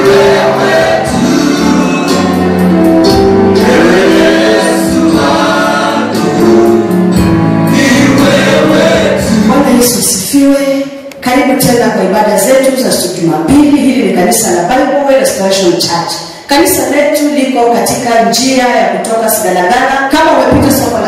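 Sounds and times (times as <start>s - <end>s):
man singing into microphone: 0.0s - 2.1s, 7.7s - 9.5s.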